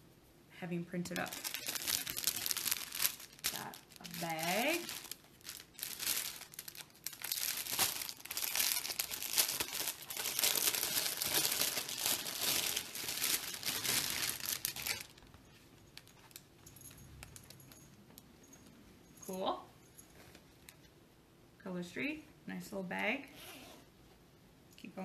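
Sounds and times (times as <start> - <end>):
plastic packaging crinkling: 1.1 - 17.6.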